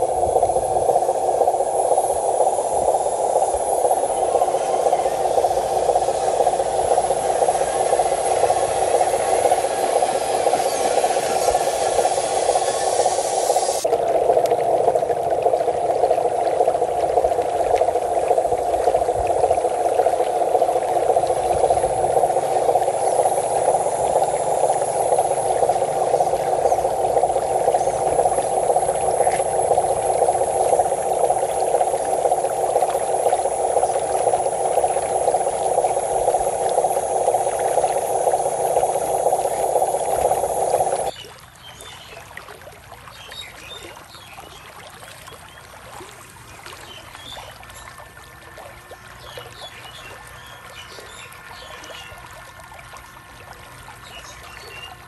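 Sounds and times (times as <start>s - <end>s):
water running and pouring: 0.0s - 41.1s
water trickling and splashing: 0.0s - 55.0s.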